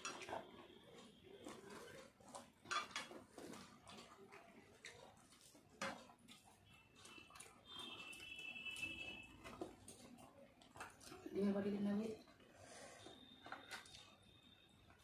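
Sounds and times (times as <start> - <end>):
fingers mixing rice on plates: 0.0 - 11.6.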